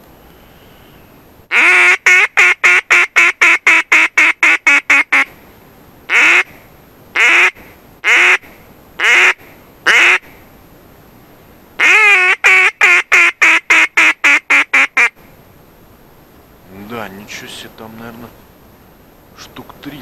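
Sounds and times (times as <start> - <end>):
duck call quacking: 1.5 - 5.3, 6.1 - 6.5, 7.2 - 10.2, 11.8 - 15.1.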